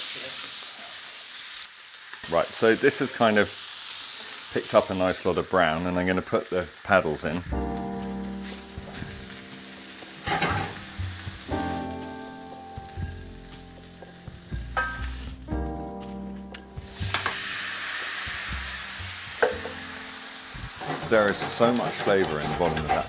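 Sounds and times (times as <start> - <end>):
loud hiss of steam: 0.0 - 1.5, 16.8 - 22.7
squid sizzling in oil: 0.0 - 23.0
utensils knocking: 10.0 - 11.8, 13.7 - 15.2, 19.4 - 20.0, 20.7 - 23.0.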